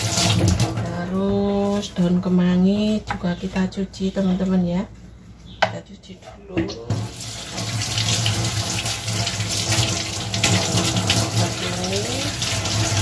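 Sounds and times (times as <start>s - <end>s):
tap water running into sink: 0.0s - 1.6s, 6.7s - 13.0s.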